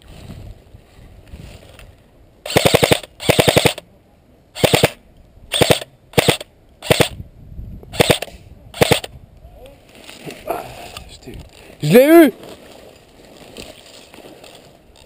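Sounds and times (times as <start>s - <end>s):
airsoft rifle bursts: 2.4s - 3.8s, 4.6s - 7.2s, 8.0s - 9.1s.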